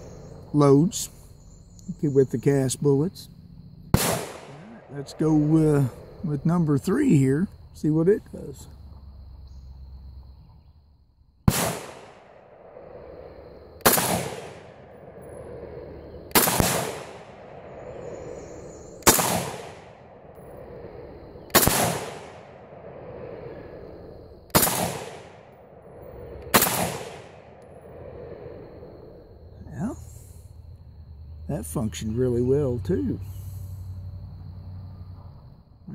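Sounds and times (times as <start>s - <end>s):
rifle shots echoing: 3.9s - 6.0s, 11.5s - 12.8s, 13.8s - 15.2s, 16.3s - 18.1s, 19.0s - 20.3s, 21.4s - 23.0s, 24.5s - 25.5s, 26.5s - 27.6s.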